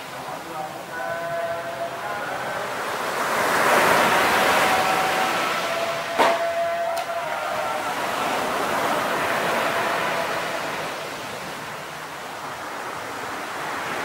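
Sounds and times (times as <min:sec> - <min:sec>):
surf washing onto sandy beach: 0:00.0 - 0:14.0.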